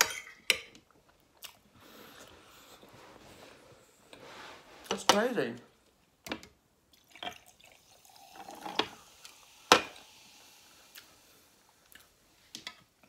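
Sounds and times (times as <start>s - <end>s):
soda pouring over ice: 7.0s - 11.3s.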